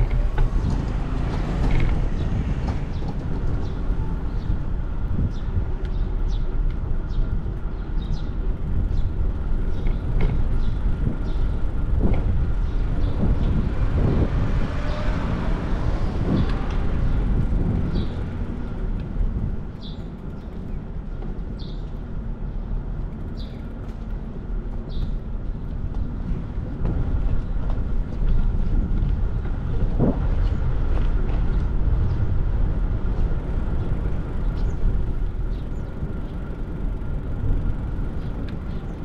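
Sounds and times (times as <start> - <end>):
vehicle passing: 0.0 - 5.0, 11.7 - 19.4
street traffic rumbling: 0.0 - 39.0.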